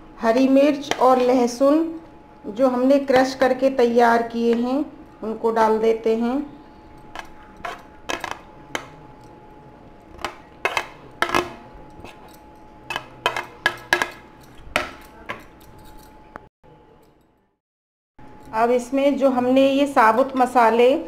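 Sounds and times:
metal spoon scraping plate and bowl: 6.8 - 9.3, 10.1 - 15.8.

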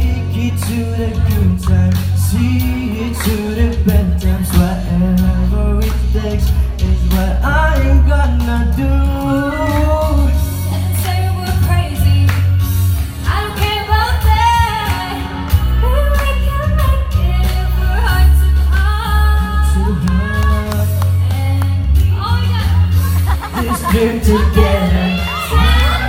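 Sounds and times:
backing track with heavy bass: 0.0 - 26.0
woman singing into a microphone: 10.5 - 12.5, 13.2 - 23.0.

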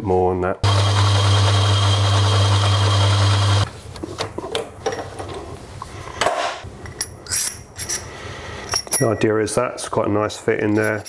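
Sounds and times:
lathe motor hum: 0.6 - 3.6.

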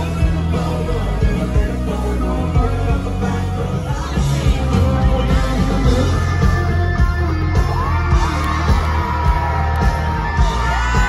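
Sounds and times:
male singer: 0.0 - 7.2
country band music: 0.0 - 11.0
audience yelling: 6.1 - 11.0.

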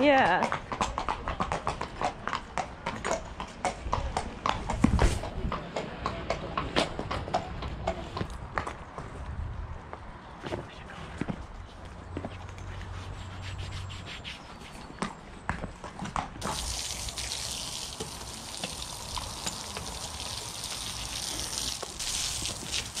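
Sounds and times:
hose spraying water: 16.4 - 23.0.

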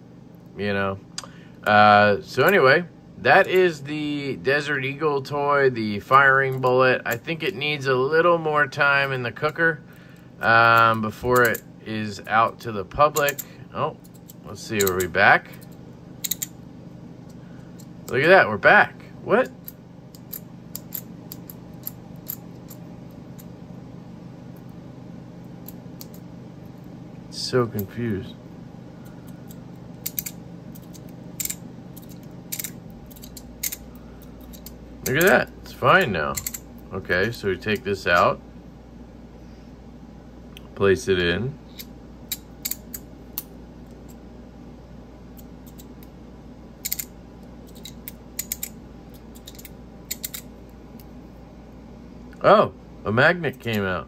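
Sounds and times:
steady low hum: 0.0 - 54.0
metal fidget toy clicking: 14.1 - 16.5, 30.0 - 33.8, 36.4 - 36.6, 46.8 - 47.1, 47.7 - 48.7.

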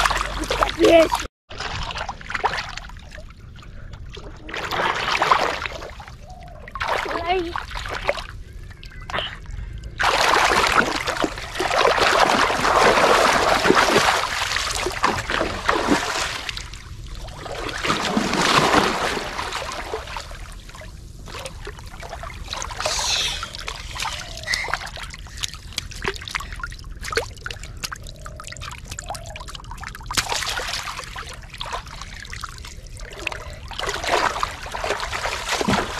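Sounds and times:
water splashing and sloshing: 0.0 - 35.9
water trickling and dripping: 19.4 - 35.9.

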